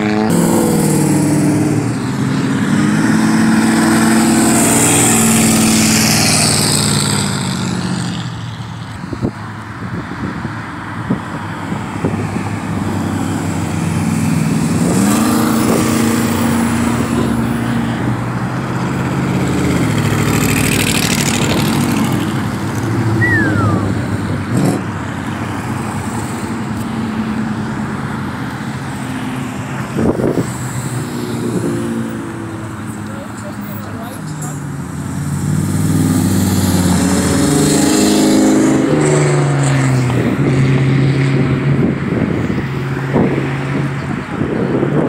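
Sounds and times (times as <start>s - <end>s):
tyre and exhaust rush: 0.0s - 45.0s
falling whistle: 23.2s - 23.9s
car engines accelerating past: 28.2s - 45.0s.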